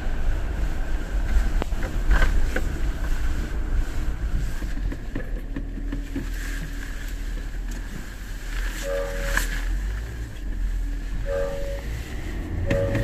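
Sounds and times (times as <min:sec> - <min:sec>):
engine and tyre rumble: 0:00.0 - 0:13.0.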